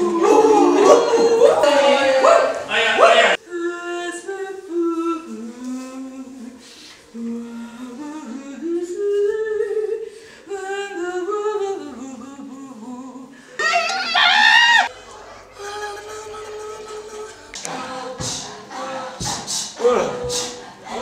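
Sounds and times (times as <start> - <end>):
choir humming: 0.0 - 5.3, 13.6 - 21.0.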